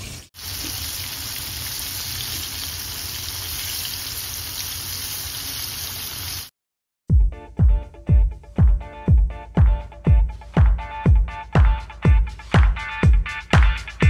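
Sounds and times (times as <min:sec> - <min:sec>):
fish sizzling in hot oil: 0:00.0 - 0:06.5.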